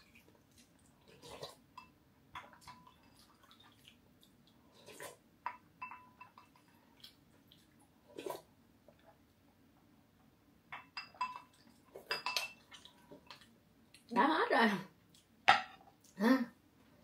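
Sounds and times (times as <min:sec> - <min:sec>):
metal spoon clinking on glass bowl: 0:05.5 - 0:06.6, 0:10.8 - 0:12.6.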